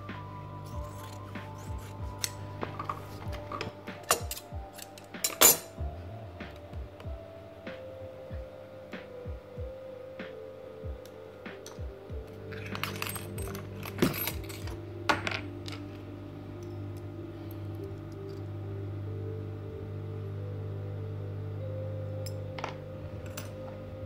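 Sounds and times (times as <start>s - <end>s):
steady low hum: 0.0s - 24.0s
metal parts clinking: 12.5s - 15.8s.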